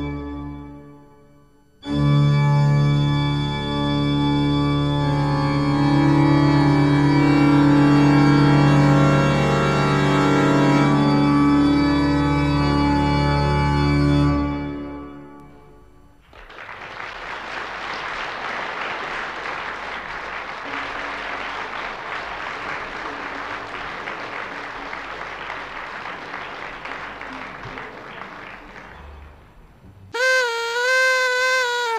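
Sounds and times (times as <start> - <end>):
audience applause: 16.2 - 30.3
loud steady tone: 30.2 - 31.9.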